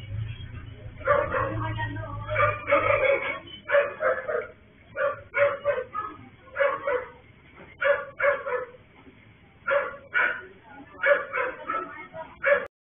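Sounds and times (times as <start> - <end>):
dog barking: 1.0 - 7.2, 7.8 - 8.8, 9.7 - 12.7.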